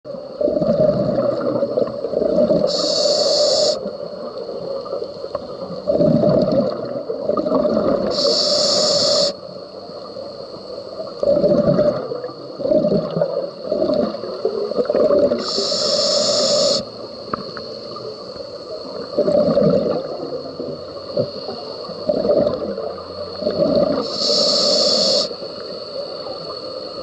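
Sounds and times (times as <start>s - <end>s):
bubbles gurgling underwater: 0.4s - 2.8s, 3.9s - 8.2s, 11.0s - 15.5s, 18.8s - 24.1s
regulator air hissing: 2.6s - 4.0s, 8.1s - 9.5s, 15.3s - 17.0s, 24.0s - 27.0s.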